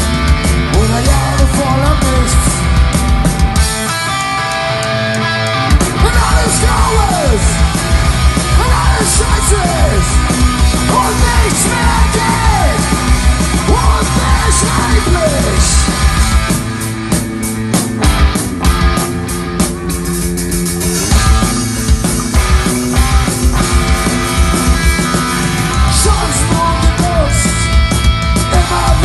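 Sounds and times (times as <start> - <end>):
live rock band playing: 0.0 - 29.0
singer shouting: 0.8 - 2.6, 5.6 - 15.9, 25.8 - 27.8, 28.4 - 29.0.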